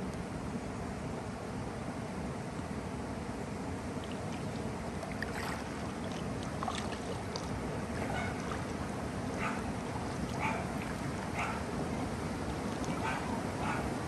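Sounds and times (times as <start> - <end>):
low rushing water: 2.9 - 14.0
paddle splashing in water: 4.0 - 14.0.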